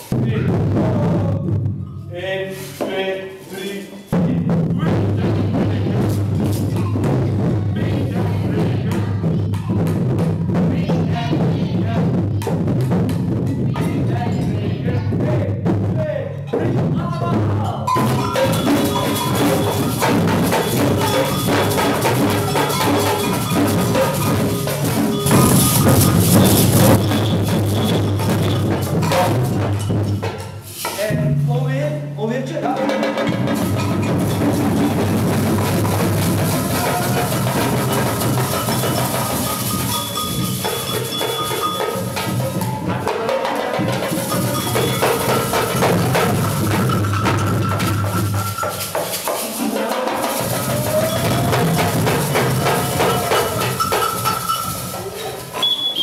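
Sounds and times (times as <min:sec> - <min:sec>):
surdo bass drum: 0:00.0 - 0:01.8, 0:04.2 - 0:31.5, 0:33.3 - 0:48.6, 0:50.2 - 0:55.2
metal tube shakers: 0:02.4 - 0:04.2, 0:17.9 - 0:31.1, 0:33.6 - 0:43.0, 0:43.6 - 0:56.0
hand drums hit with sticks: 0:04.1 - 0:10.7, 0:15.6 - 0:31.4, 0:32.9 - 0:56.0.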